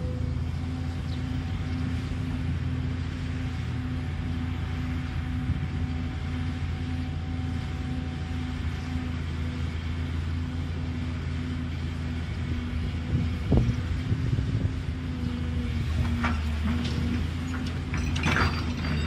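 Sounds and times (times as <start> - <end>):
low pulsing tone: 0.0 - 11.6
diesel engines running: 0.0 - 19.0.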